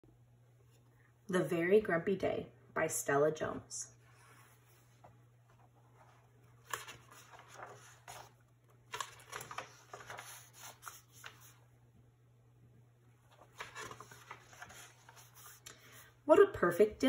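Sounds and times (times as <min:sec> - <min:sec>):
faint low hum: 0:00.0 - 0:17.0
book pages turning: 0:04.1 - 0:11.6, 0:13.3 - 0:16.1.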